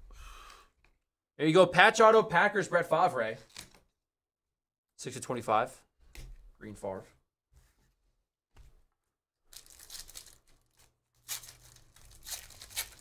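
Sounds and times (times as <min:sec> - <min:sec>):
foil wrapper tearing and crinkling: 0:09.5 - 0:13.0.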